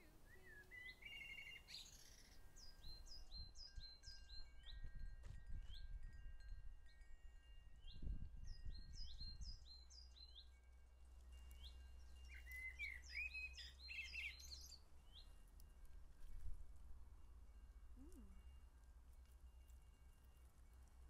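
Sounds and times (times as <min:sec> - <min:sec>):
songbird chirping and warbling: 0:00.0 - 0:04.9, 0:11.4 - 0:15.4.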